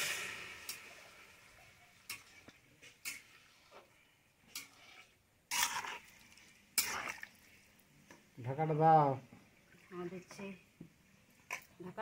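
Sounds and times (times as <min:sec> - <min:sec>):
utensil scraping in a pot: 0:02.1 - 0:07.7.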